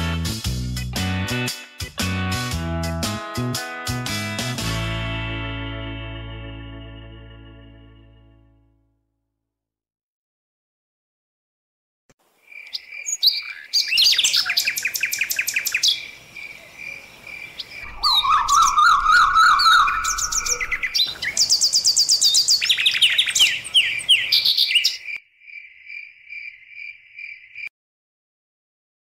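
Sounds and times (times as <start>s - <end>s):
birds chirping and trilling: 12.4s - 27.7s
pulsing bird call: 17.8s - 21.2s.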